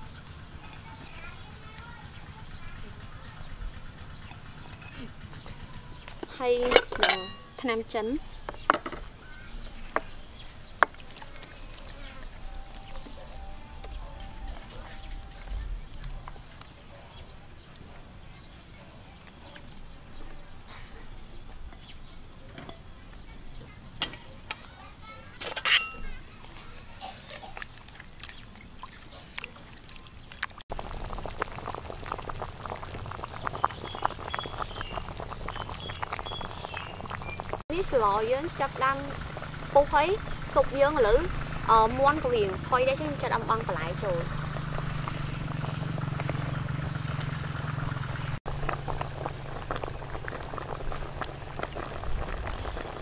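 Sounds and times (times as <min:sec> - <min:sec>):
metal ladle stirring: 0:06.2 - 0:07.6, 0:25.4 - 0:26.0
soup boiling with popping bubbles: 0:09.7 - 0:16.8, 0:27.1 - 0:53.0.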